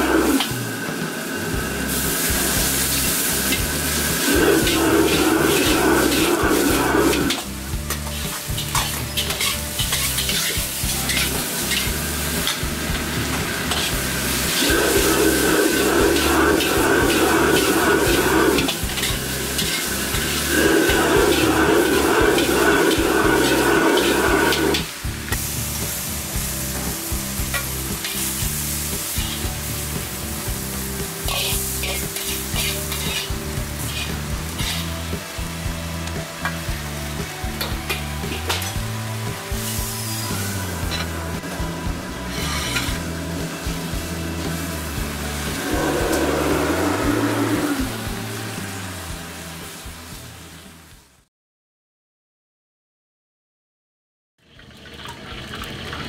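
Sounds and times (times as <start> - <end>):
background music: 0.0 - 51.2
lettuce sizzling in a wok: 0.0 - 51.2
metal spatula scraping a wok: 1.9 - 25.5, 26.5 - 30.0, 30.8 - 35.1, 39.6 - 41.3, 42.1 - 43.8.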